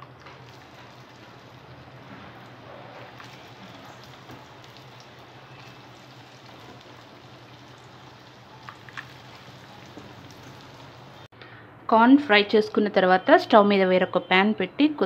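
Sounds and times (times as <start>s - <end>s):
batter sizzling in hot oil: 0.0s - 11.3s.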